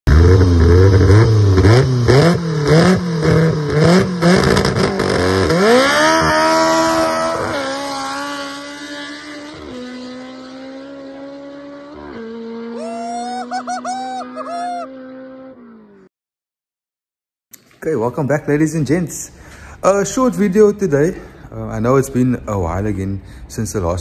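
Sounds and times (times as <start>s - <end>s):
car engine revving and accelerating: 0.1s - 16.0s.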